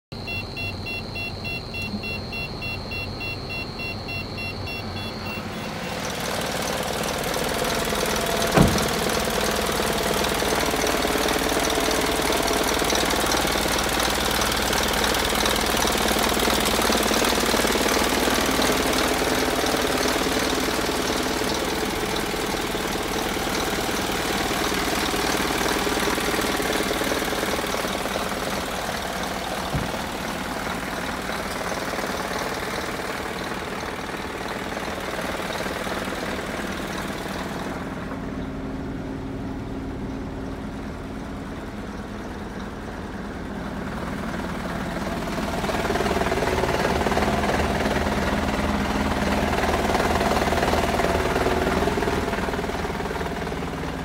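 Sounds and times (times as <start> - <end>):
diesel truck engine idling: 0.1 - 54.0
sharp knock: 8.5 - 9.0.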